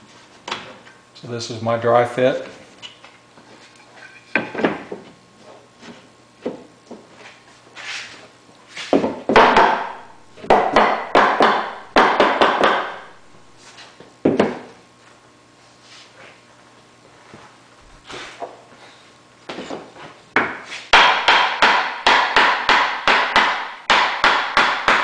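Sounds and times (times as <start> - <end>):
mallet knocking wood: 9.0 - 13.2, 20.4 - 25.0.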